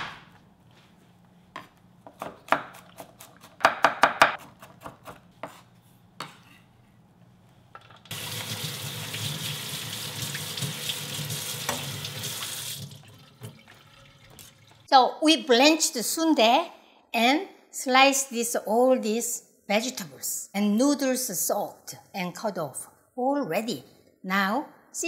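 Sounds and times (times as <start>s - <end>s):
knife chopping on wooden board: 1.6s - 6.4s
faucet running into sink: 8.1s - 14.9s.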